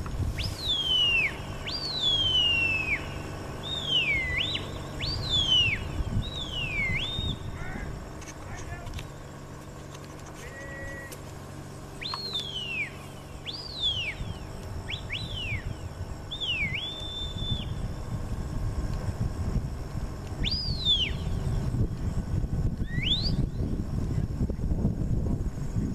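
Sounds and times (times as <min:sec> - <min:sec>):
wind rumbling on microphone: 0:00.0 - 0:10.3, 0:12.0 - 0:25.9
sharp whistled commands: 0:00.3 - 0:07.9, 0:11.9 - 0:18.1, 0:20.4 - 0:21.7, 0:22.8 - 0:23.7.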